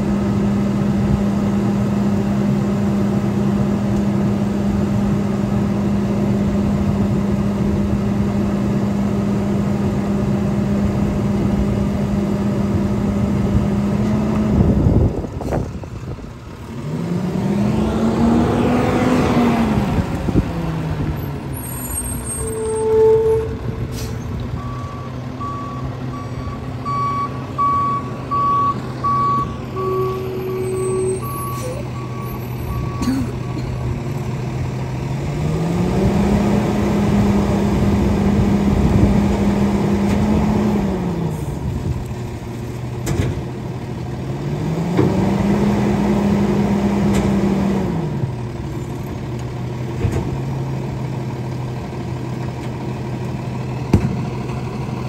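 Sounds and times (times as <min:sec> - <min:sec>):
garbage truck engine: 0:00.0 - 0:55.0
reverse alarm beeping: 0:24.6 - 0:33.0.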